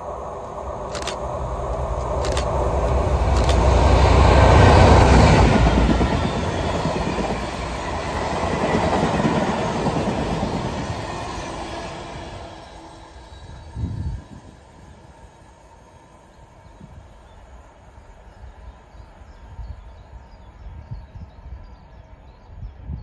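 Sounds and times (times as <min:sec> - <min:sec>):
train wagons rolling on rails: 0:00.0 - 0:15.4
diesel locomotive engine working hard: 0:00.0 - 0:15.9.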